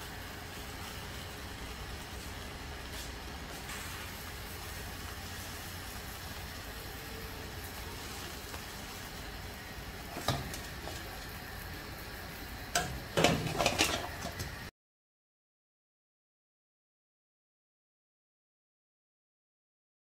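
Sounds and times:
metal spatula scraping frying pan: 0:12.8 - 0:14.5.

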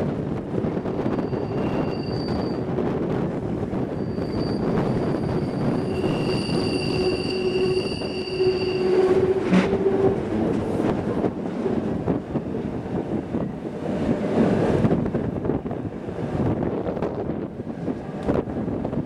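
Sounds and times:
train wheels squealing: 0:01.0 - 0:02.6, 0:03.8 - 0:09.7.

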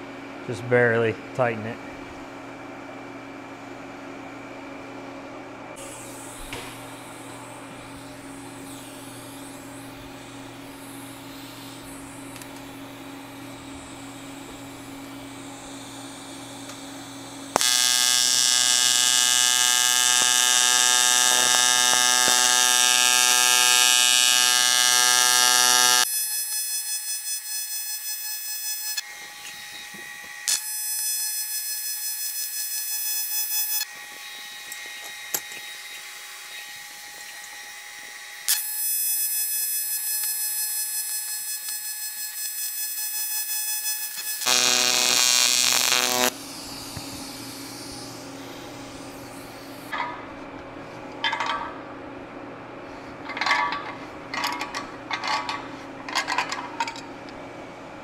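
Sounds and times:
welding arc buzzing: 0:05.8 - 0:37.6, 0:38.5 - 0:50.0.

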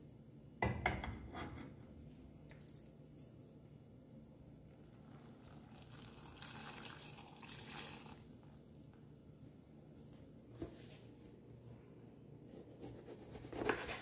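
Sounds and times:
water splashing into saucepan: 0:04.9 - 0:08.9.

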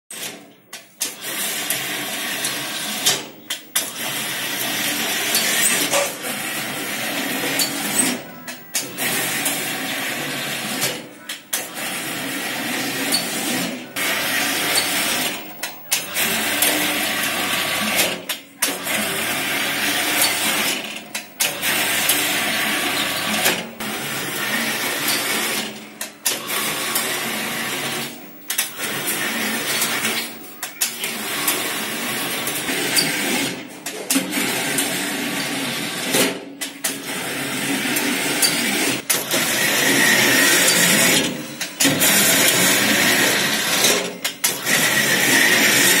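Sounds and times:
dough sheeter motor whirring: 0:00.1 - 0:46.0.

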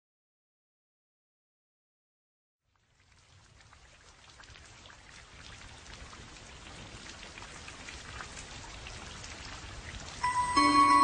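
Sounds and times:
steady rain falling: 0:02.7 - 0:11.0.

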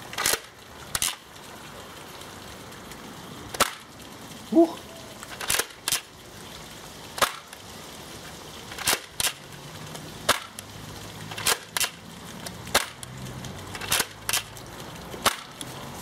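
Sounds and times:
sharp plastic snaps of dart blaster: 0:03.5 - 0:03.9, 0:07.2 - 0:07.6, 0:10.3 - 0:10.6, 0:12.7 - 0:13.1, 0:13.8 - 0:14.5, 0:15.2 - 0:15.7.

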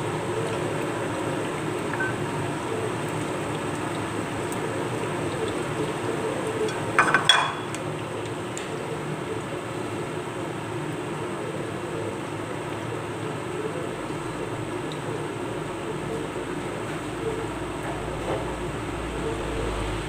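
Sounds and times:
food sizzling in oil: 0:00.0 - 0:11.2
low even hum: 0:00.0 - 0:20.0
spatula clattering against pan: 0:06.7 - 0:07.8.

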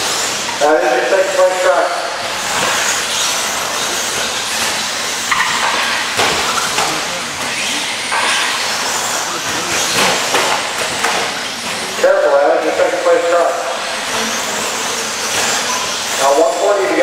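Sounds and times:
electric motors whining: 0:00.0 - 0:17.0.

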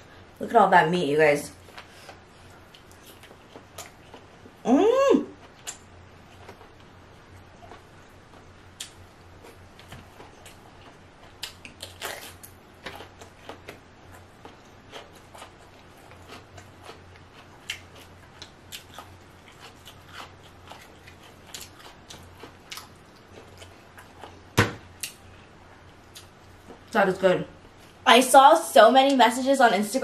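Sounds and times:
crunchy bites and chewing: 0:08.8 - 0:25.2.

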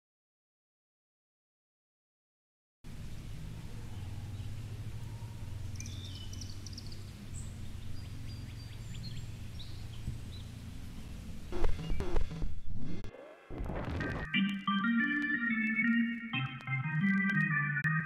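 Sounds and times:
birds chirping and whistling: 0:03.7 - 0:10.5
steady low rumble: 0:07.0 - 0:14.2.

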